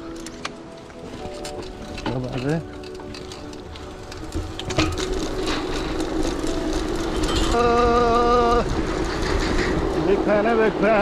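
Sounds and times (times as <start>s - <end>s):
bike tyres rumbling on metal grating: 1.1s - 11.0s
metal clank: 4.3s - 5.9s.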